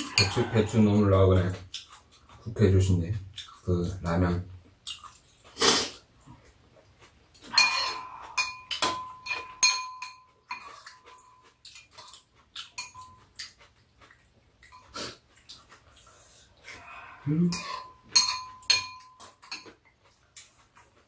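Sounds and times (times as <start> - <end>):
utensils clinking against bowls: 0.0 - 1.1, 7.4 - 11.9, 12.7 - 13.6, 17.5 - 19.8
ringing metal tone: 7.6 - 10.4.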